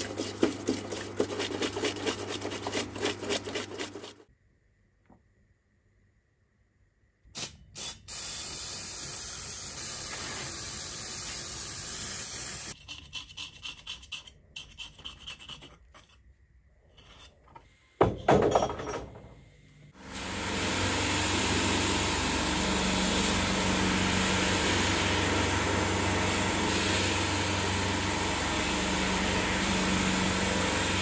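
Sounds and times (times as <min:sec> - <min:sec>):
sandblasting gun blasts: 0:07.3 - 0:12.8, 0:20.0 - 0:31.0
aerosol can spraying: 0:07.4 - 0:12.8.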